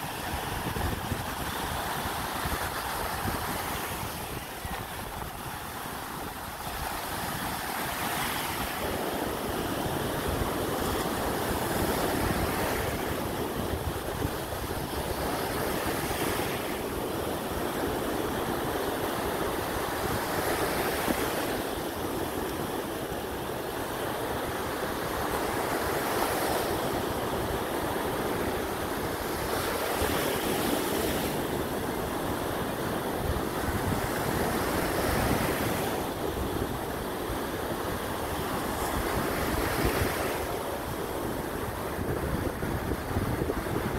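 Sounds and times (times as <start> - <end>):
wind buffeting microphone: 0.0 - 17.1, 32.9 - 43.9
ocean surf breaking on sand: 0.0 - 43.9.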